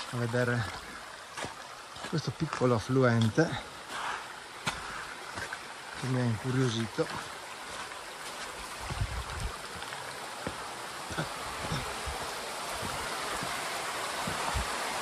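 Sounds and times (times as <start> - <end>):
stream splashing over rocks: 0.0 - 15.0
soft low thumps: 8.8 - 9.6, 11.5 - 14.8.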